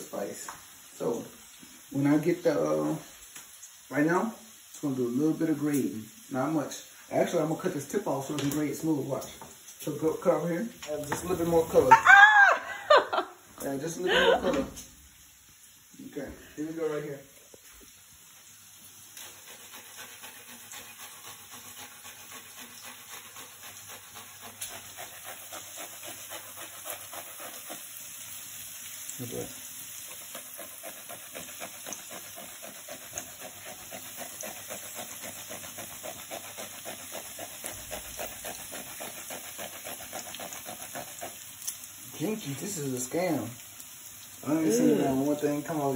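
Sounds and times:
food sizzling in frying pan: 0:00.0 - 0:45.9
pepper scraping on metal grater: 0:19.2 - 0:28.0, 0:30.0 - 0:41.8.

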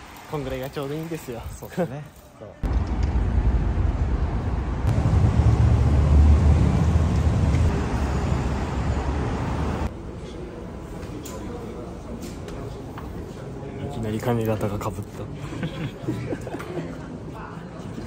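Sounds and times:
low rumbling city noise: 0:02.6 - 0:18.0.

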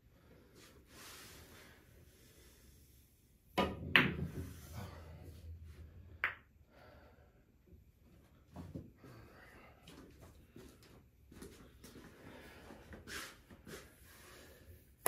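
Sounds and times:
pool balls clacking: 0:03.6 - 0:04.5.

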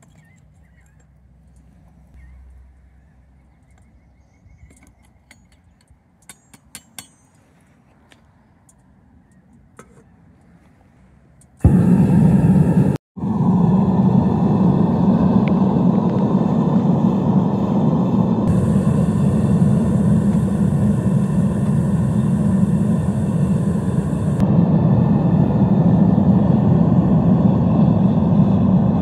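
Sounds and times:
furnace gas burner roaring: 0:11.6 - 0:29.0.

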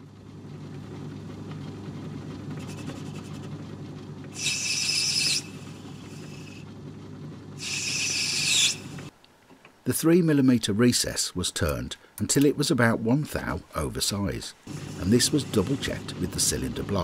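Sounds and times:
lathe humming: 0:00.0 - 0:06.8, 0:07.6 - 0:09.1, 0:14.6 - 0:17.0
tool cutting brass hiss: 0:04.4 - 0:06.6, 0:07.6 - 0:09.1.

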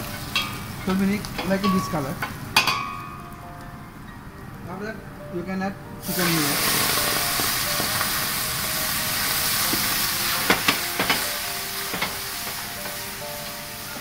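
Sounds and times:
chicken sizzling in hot oil: 0:06.0 - 0:14.0.

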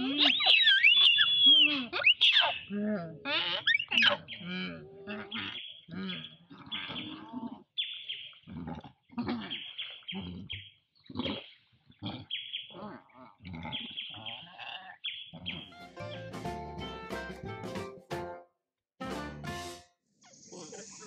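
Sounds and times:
monkeys giving high-pitched calls: 0:00.0 - 0:07.2.

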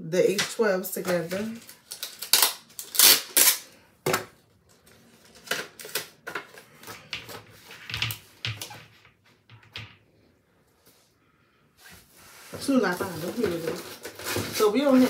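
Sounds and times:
packaging clicks and rustles: 0:12.9 - 0:15.0.

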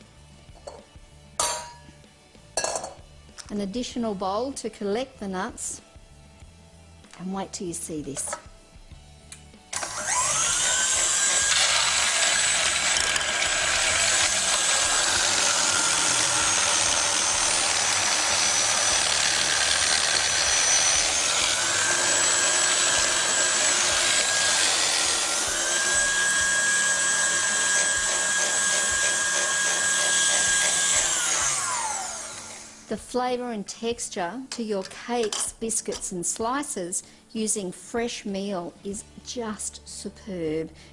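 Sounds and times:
stand mixer motor whine: 0:09.8 - 0:32.9
gritty grinding rasp: 0:10.4 - 0:32.3.

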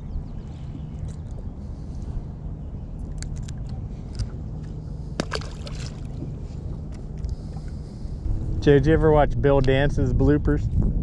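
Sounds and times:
low hum: 0:00.0 - 0:11.0
water lapping against boat hull: 0:03.1 - 0:08.2.

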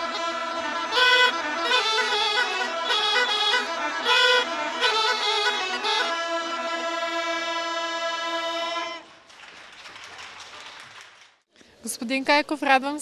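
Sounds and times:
bagpipes playing folk melody: 0:00.0 - 0:09.1
faint background noise: 0:00.0 - 0:13.0.

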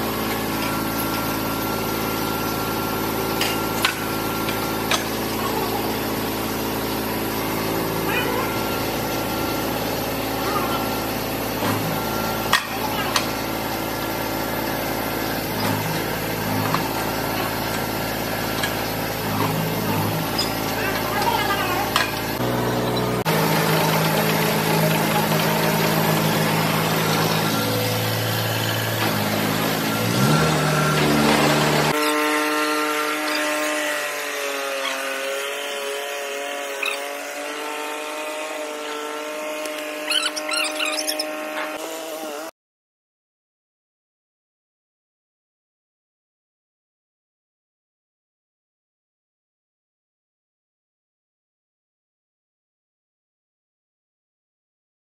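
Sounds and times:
small tractor engine idling: 0:00.0 - 0:32.0
high chirps: 0:40.0 - 0:41.4.

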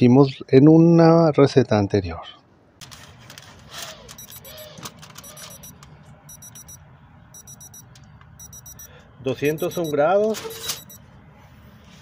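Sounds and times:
high-pitched alarm beeps: 0:04.2 - 0:07.8, 0:08.4 - 0:11.0.

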